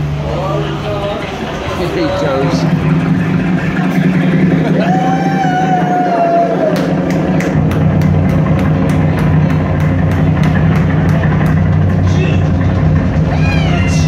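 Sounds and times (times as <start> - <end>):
heavy bass line: 0.0 - 14.0
drums: 1.2 - 14.0.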